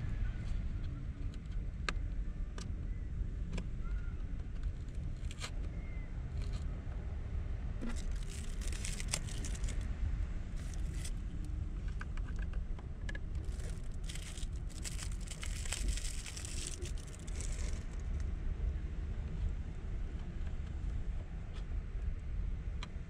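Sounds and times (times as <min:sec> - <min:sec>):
plastic wrapper crinkling and tearing: 0:07.8 - 0:09.8, 0:10.6 - 0:11.2, 0:13.4 - 0:18.2
small clicks: 0:11.9 - 0:18.0.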